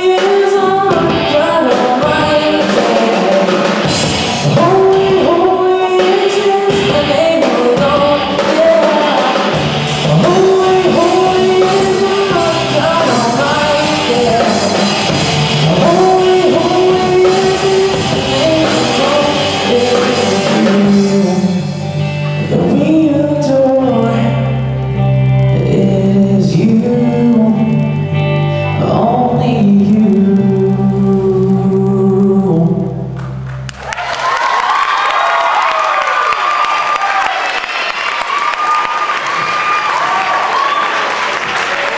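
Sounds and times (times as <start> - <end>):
male singer: 0.0 - 33.2
drums: 0.0 - 41.9
electric guitars: 0.0 - 41.9.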